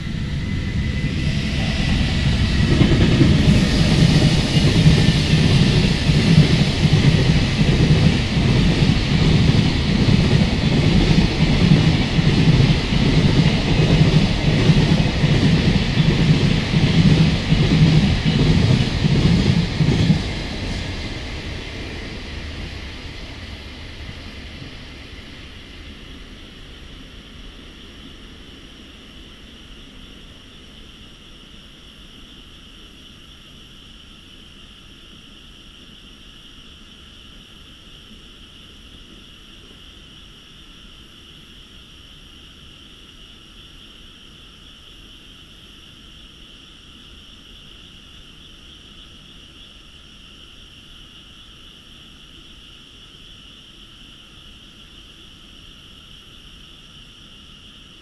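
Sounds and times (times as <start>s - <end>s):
faint low rumble: 0.0s - 7.0s
freight train rumble: 0.0s - 31.0s.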